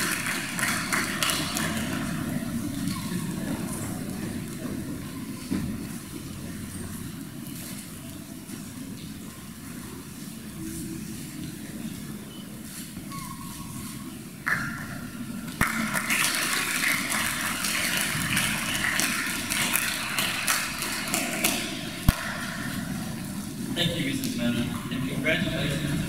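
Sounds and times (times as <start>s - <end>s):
audience clapping: 0.0s - 3.0s, 15.6s - 22.7s
murmur of voices: 0.0s - 26.0s.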